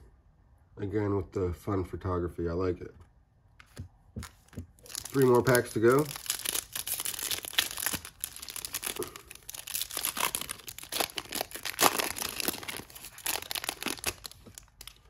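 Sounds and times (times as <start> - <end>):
plastic wrapper tearing and crinkling: 4.2 - 15.0.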